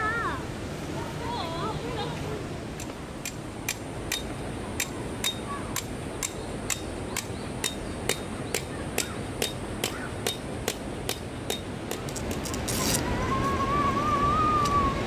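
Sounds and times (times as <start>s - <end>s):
background hiss: 0.0s - 15.0s
hammer striking metal: 3.2s - 12.0s.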